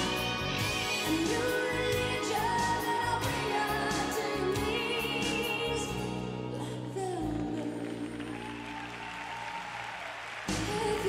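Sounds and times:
song with wavering sung melody: 0:00.0 - 0:08.7.

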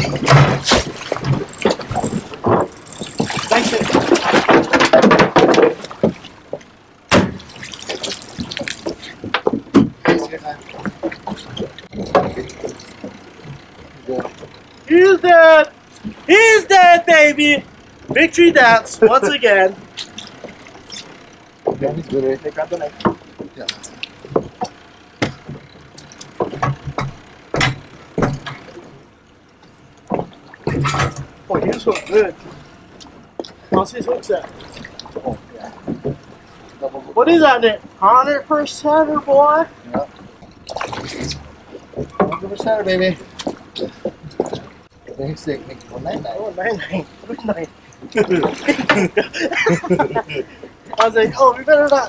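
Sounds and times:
fish thrashing and splashing: 0:00.0 - 0:14.9, 0:19.8 - 0:21.6, 0:34.3 - 0:36.8, 0:40.0 - 0:44.9, 0:45.5 - 0:50.9.

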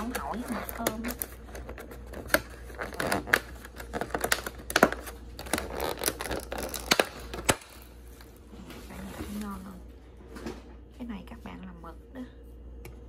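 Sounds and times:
plastic lid crackling and snapping: 0:00.0 - 0:07.9.

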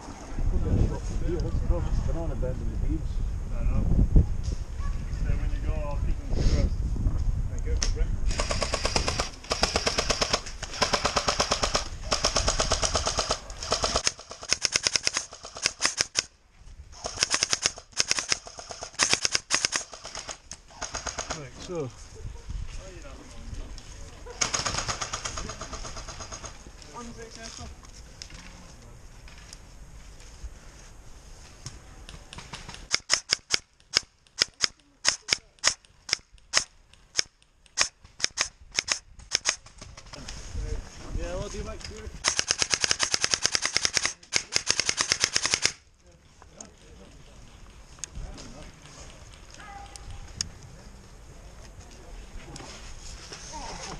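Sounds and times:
airsoft rifle full-auto bursts: 0:08.3 - 0:16.3, 0:17.0 - 0:21.4, 0:24.4 - 0:26.6, 0:42.2 - 0:45.8.

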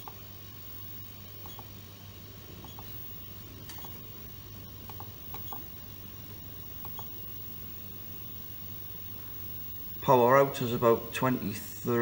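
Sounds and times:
inverter low steady hum: 0:00.0 - 0:12.0.

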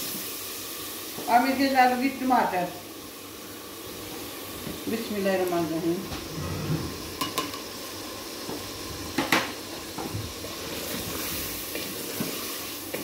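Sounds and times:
food sizzling in oil: 0:00.0 - 0:13.0
spoon knocking against pot: 0:07.2 - 0:07.6
wooden spoon scraping a pot: 0:10.2 - 0:13.0.

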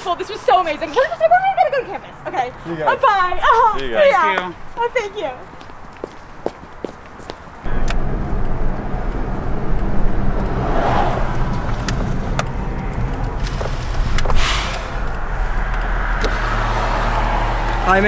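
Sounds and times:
road noise: 0:00.0 - 0:18.0
car engine hum: 0:07.5 - 0:18.0.

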